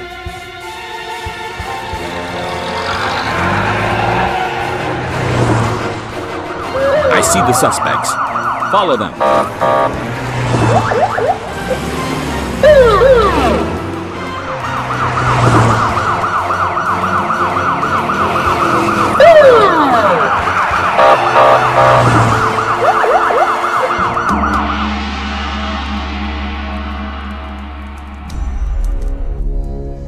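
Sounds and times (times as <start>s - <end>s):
low background music: 0.0s - 30.0s
vehicle engine: 1.7s - 24.2s
police siren yelping: 6.5s - 11.9s, 12.6s - 25.0s.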